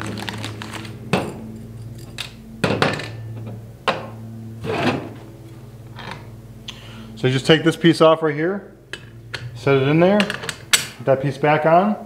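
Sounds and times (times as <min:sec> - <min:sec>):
steady low hum: 0:00.0 - 0:12.0
small metal parts clinking: 0:00.1 - 0:02.4.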